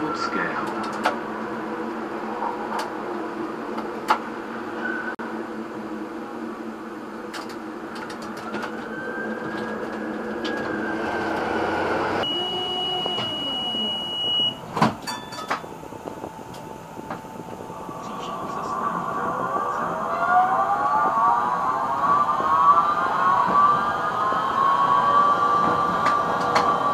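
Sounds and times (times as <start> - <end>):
tram motor whine: 0.0 - 26.9
steady high tone: 10.7 - 26.9.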